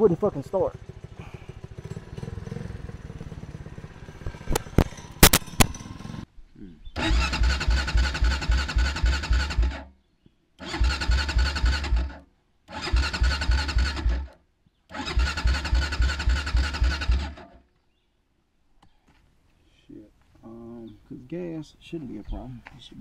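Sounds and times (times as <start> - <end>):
engine cranking on starter: 7.0 - 9.9, 10.6 - 14.3, 14.9 - 17.6.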